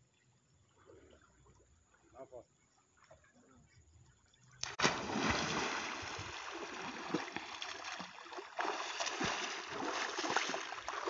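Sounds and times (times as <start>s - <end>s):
swimmer splashing through water: 4.6s - 11.0s.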